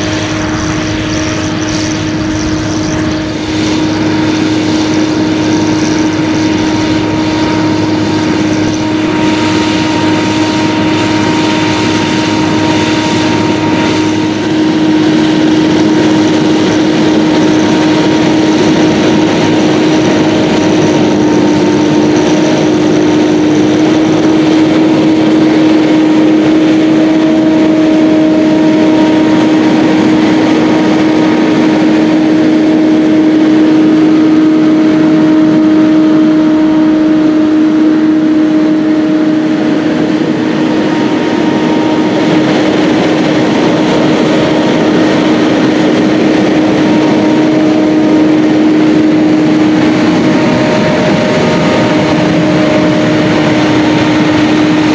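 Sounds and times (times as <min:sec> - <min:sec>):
tractor diesel engine droning: 0:00.0 - 0:54.9.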